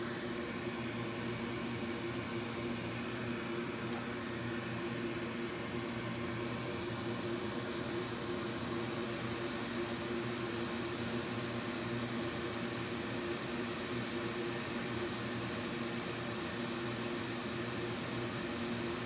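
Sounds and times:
hot air blower hissing: 0:00.0 - 0:19.0.

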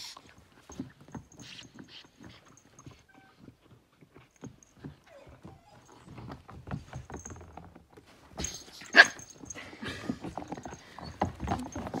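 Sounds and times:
puppies scuffling on wooden floor: 0:00.0 - 0:12.0.

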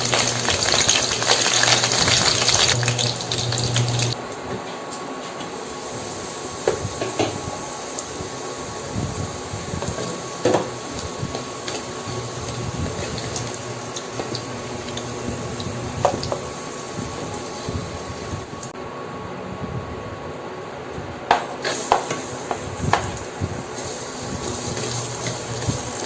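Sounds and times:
potatoes sizzling in oil: 0:00.0 - 0:04.2, 0:09.1 - 0:18.4, 0:21.6 - 0:26.0.

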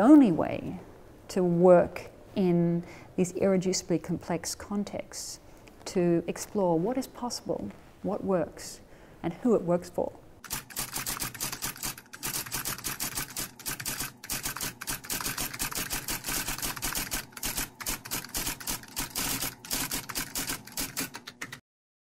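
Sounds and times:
typewriter keys clicking: 0:10.4 - 0:21.6.

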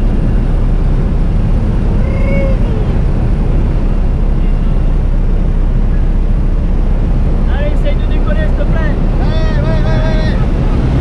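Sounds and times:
plane engine drone in cabin: 0:00.0 - 0:11.0
passenger crying out: 0:01.7 - 0:06.2, 0:07.5 - 0:11.0.

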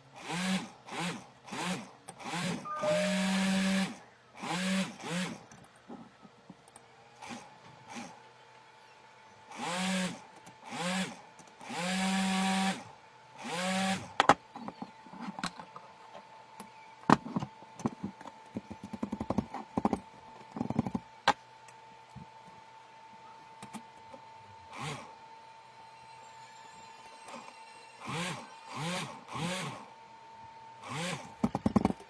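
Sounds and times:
short rising and falling whines: 0:02.4 - 0:04.1
faint high hum: 0:02.5 - 0:04.4, 0:14.0 - 0:32.0.

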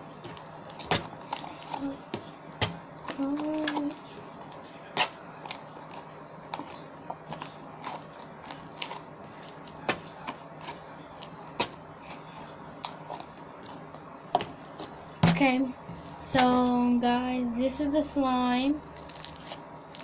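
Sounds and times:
slime clicking and crackling: 0:18.9 - 0:20.0.

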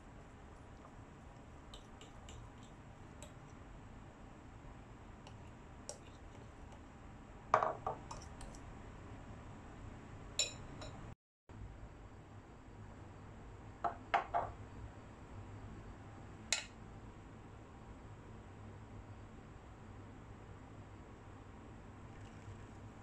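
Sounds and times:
metal whisk stirring batter: 0:00.0 - 0:03.6, 0:05.3 - 0:06.9
whisk clicking against bowl: 0:00.7 - 0:03.5.

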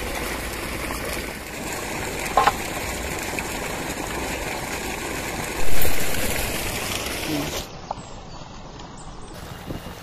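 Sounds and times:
steady rushing noise: 0:05.6 - 0:07.8.

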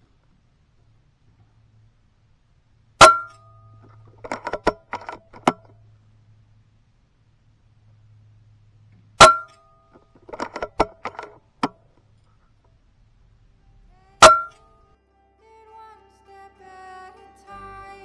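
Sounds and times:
faint music: 0:11.4 - 0:18.0.

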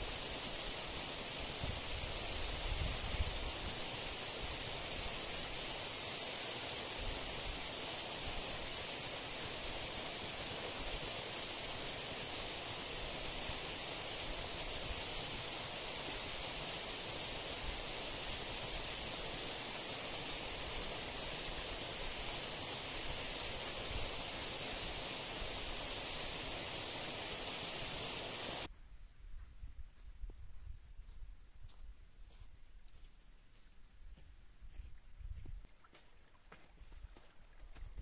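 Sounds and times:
steady outdoor hiss: 0:00.0 - 0:28.8.

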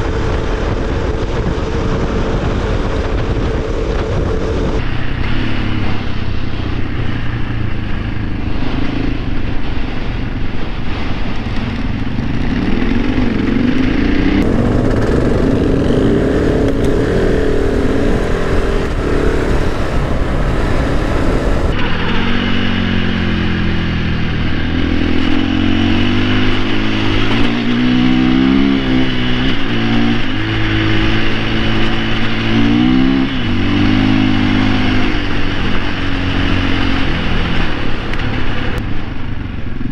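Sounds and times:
dirt bike engine running: 0:00.0 - 0:39.9.

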